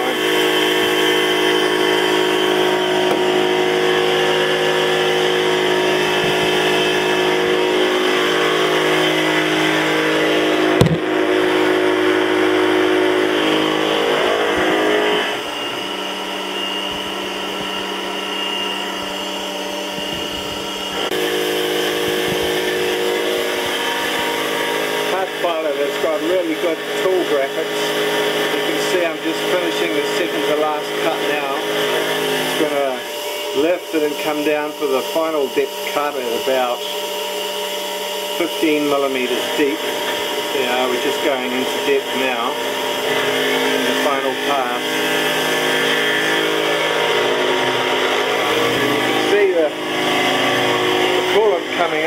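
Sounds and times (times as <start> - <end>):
milling machine cutting whine: 0.0 - 52.0
sharp knock: 10.8 - 11.2.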